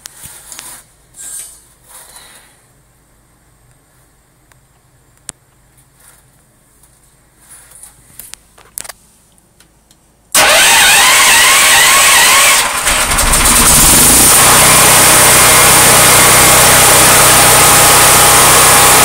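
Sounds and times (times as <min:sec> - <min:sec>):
generator engine cranking: 0:10.4 - 0:19.0
generator engine running: 0:10.4 - 0:19.0.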